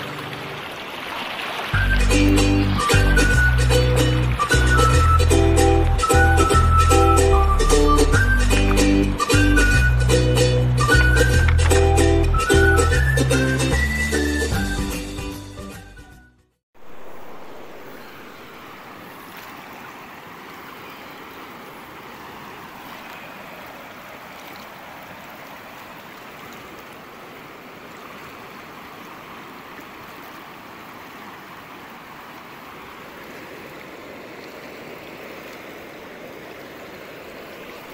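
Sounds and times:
river rushing over rocks: 0.0 - 6.6, 16.8 - 37.9.

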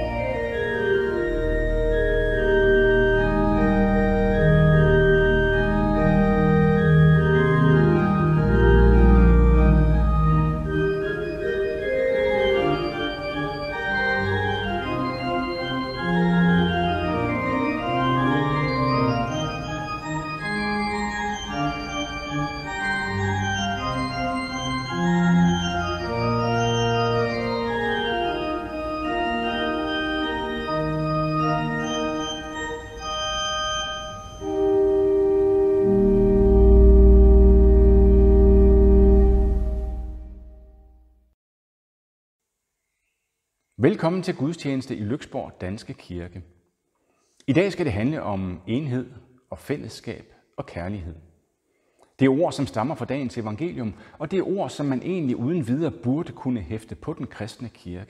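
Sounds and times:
church organ music: 0.0 - 41.1, 52.2 - 57.5.

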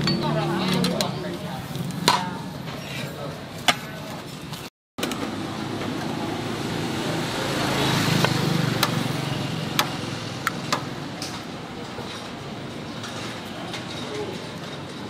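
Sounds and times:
vehicle passing by: 5.3 - 11.2.

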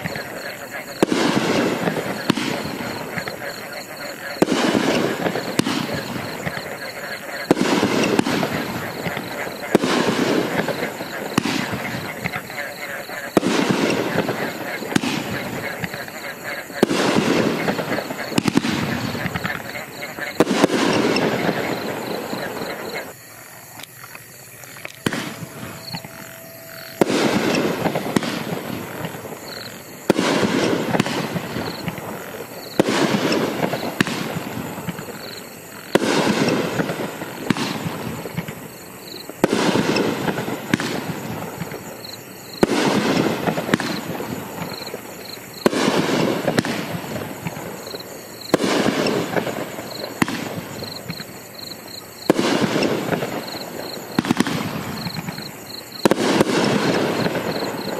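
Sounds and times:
firework bangs: 0.0 - 57.9
firework crackling: 0.0 - 57.9.

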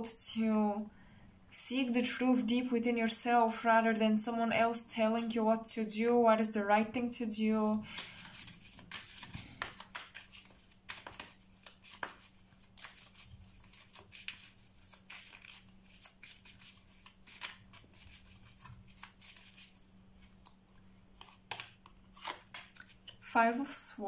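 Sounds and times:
cards being shuffled: 7.9 - 23.2.

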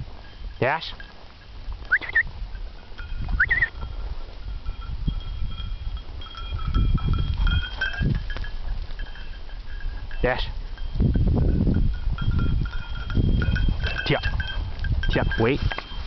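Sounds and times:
wind buffeting microphone: 0.0 - 16.0
short rising chirps: 1.9 - 2.3, 3.4 - 3.7.

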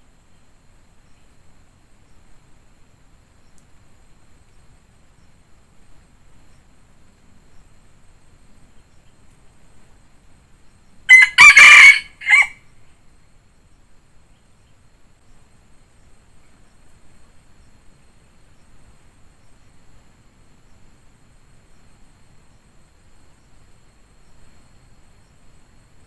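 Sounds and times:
rooster crowing: 11.1 - 12.7.

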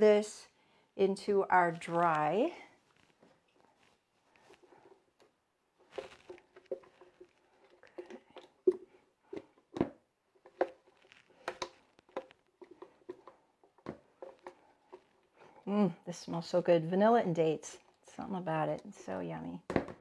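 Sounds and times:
soft squishes and scrapes: 1.3 - 16.6, 17.7 - 18.1.

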